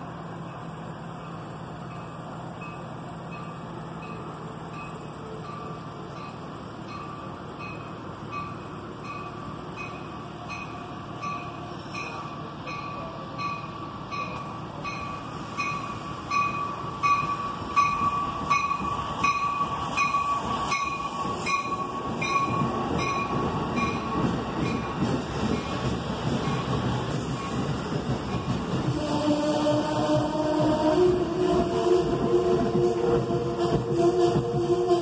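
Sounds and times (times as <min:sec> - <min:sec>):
train rumble: 0:00.0 - 0:35.0
train wheel clatter: 0:04.1 - 0:35.0.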